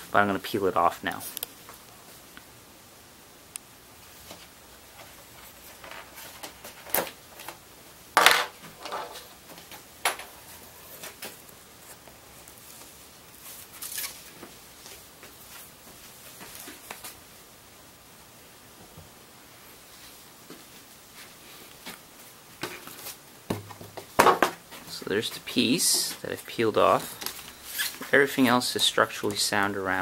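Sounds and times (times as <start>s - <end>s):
fiberglass crackling and tearing: 13.4s - 14.5s, 27.1s - 28.2s.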